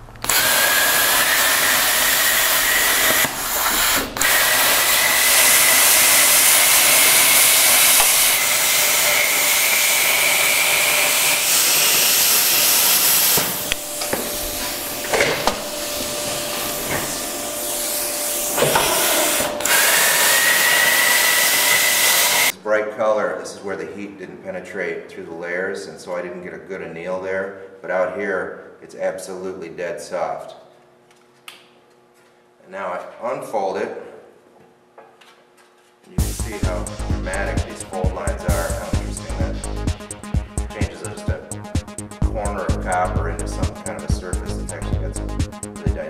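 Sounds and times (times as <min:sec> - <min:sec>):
plasma cutter hissing and whining: 0:00.2 - 0:22.5.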